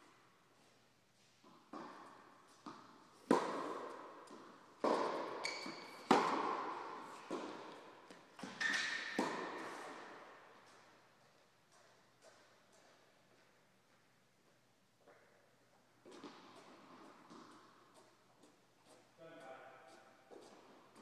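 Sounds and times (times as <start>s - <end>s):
tennis ball hits and bounces: 1.4s - 10.9s, 16.0s - 18.1s
shoe squeaks on court: 5.4s - 6.1s, 8.4s - 9.2s.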